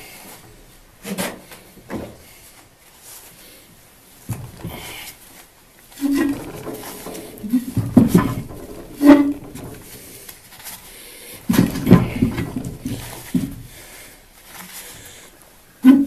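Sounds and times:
rusty metal shear creaking: 0:05.9 - 0:13.9.

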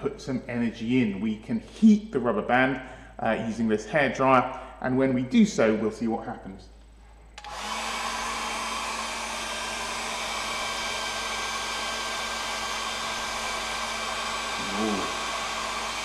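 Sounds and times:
hairdryer running: 0:07.4 - 0:16.0.

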